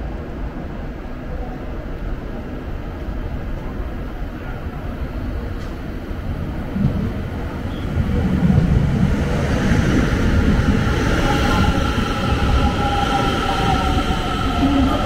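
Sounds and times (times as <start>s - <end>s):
train rumbling on rails: 0.0s - 15.0s
high squeal: 11.1s - 15.0s.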